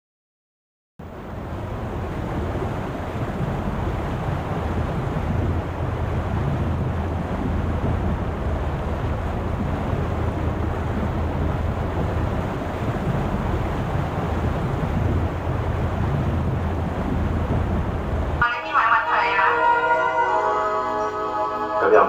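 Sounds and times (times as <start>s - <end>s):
heavy low rumble: 1.0s - 18.6s
sea rushing: 1.0s - 22.0s
wind buffeting microphone: 1.2s - 18.4s.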